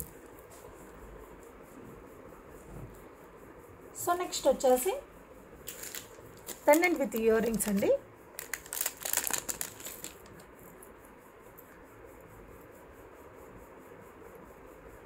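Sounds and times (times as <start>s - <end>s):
faint steady hiss: 0.0s - 15.0s
crinkling and clicking: 5.6s - 10.5s.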